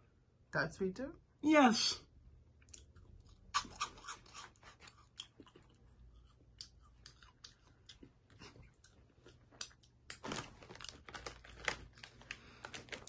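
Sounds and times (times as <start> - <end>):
person chewing crunchy snack: 2.6 - 13.0.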